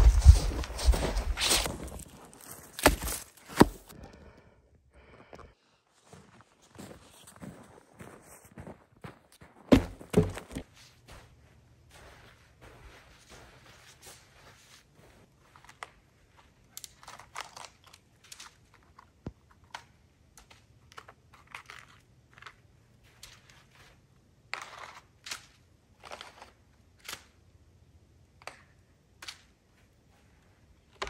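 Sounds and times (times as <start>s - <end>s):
footsteps crunching through snow: 0.0s - 3.9s, 5.9s - 15.8s.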